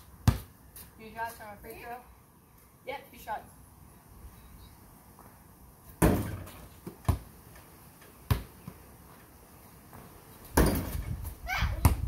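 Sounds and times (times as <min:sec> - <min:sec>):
basketball knocking on hoop and concrete: 0:00.2 - 0:00.5, 0:06.0 - 0:07.3, 0:08.3 - 0:08.8, 0:10.6 - 0:11.2, 0:11.8 - 0:12.0.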